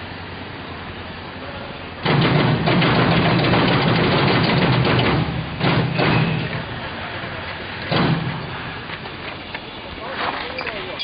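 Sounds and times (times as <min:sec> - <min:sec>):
block-making machine rattling hum: 0:02.0 - 0:06.7.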